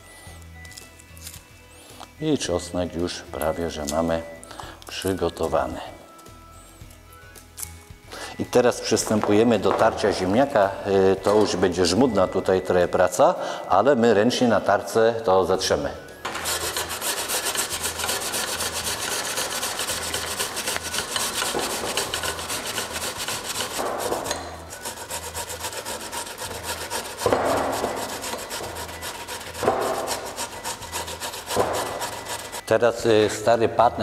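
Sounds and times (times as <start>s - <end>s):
potato grated on metal grater: 16.3s - 32.6s.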